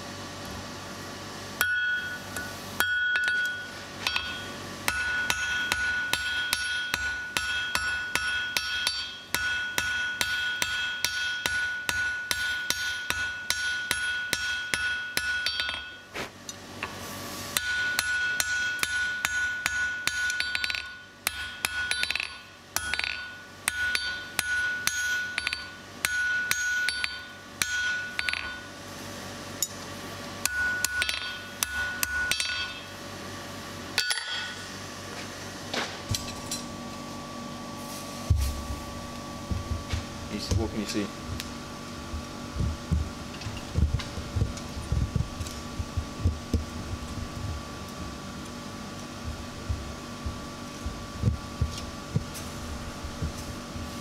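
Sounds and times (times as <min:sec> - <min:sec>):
hammer striking steel on anvil: 0:01.6 - 0:16.1, 0:17.6 - 0:28.8, 0:30.4 - 0:32.9, 0:34.0 - 0:34.7.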